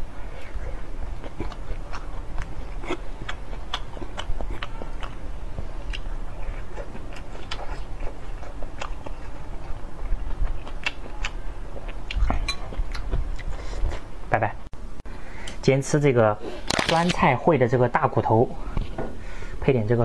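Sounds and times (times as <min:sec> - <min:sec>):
person chewing: 0:00.2 - 0:14.2.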